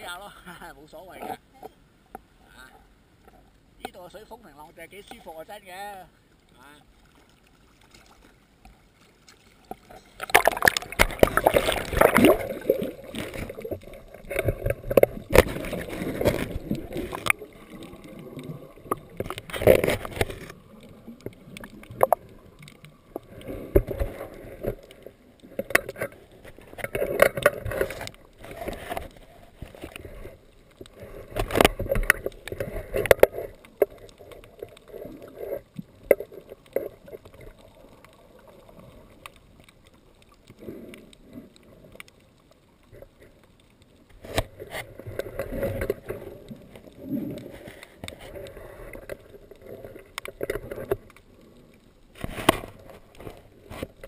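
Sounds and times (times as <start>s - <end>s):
water splashing and gurgling: 3.2s - 54.0s.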